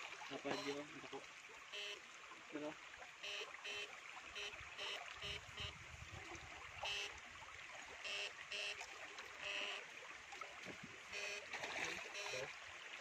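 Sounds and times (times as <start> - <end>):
flowing river water: 0.0 - 13.0
water sloshing from wading: 0.0 - 13.0
electric fishing shocker buzzing: 1.8 - 2.0, 3.2 - 5.8, 8.1 - 8.8, 9.4 - 9.9, 11.2 - 11.5.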